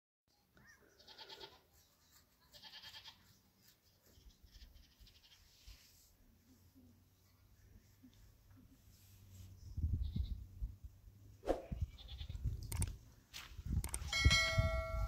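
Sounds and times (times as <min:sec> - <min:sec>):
farm animals bleating: 0:00.8 - 0:01.7, 0:02.5 - 0:03.3, 0:04.5 - 0:05.5, 0:11.9 - 0:12.4.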